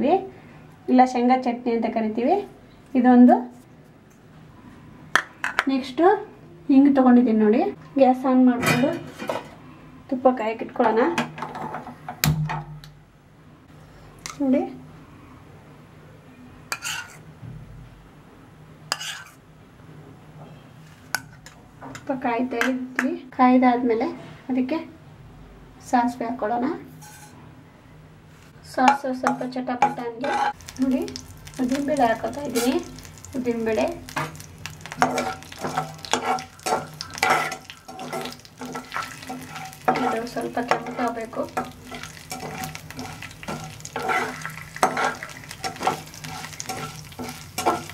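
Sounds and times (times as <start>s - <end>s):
spatula scraping pan: 16.7s - 17.2s, 18.9s - 19.4s, 27.0s - 27.4s, 29.3s - 30.6s, 34.1s - 47.9s
seeds sizzling in hot fat: 30.2s - 47.9s.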